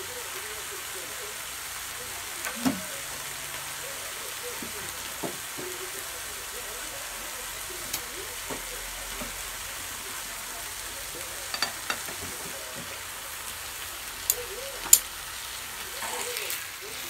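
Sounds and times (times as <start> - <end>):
meat sizzling on a grill pan: 0.0 - 17.0
metal tongs clicking against pan: 14.2 - 15.1.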